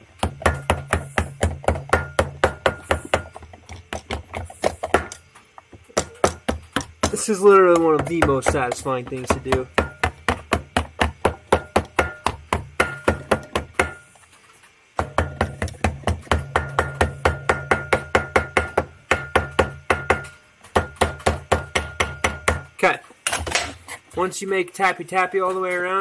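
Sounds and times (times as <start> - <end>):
hammer tapping on metal: 0.2 - 5.2, 5.9 - 14.1, 15.0 - 22.8.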